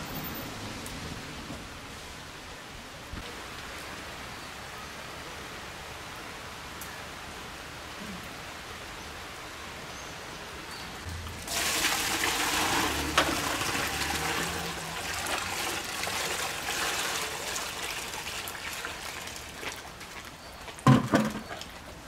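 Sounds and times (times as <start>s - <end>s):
water pouring into plastic tub: 11.2s - 20.0s.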